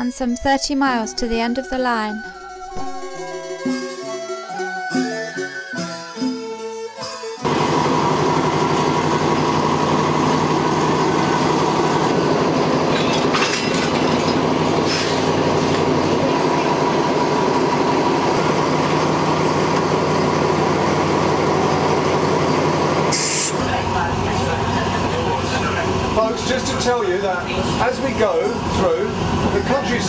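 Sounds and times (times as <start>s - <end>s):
diesel locomotive engine running: 7.4s - 30.0s.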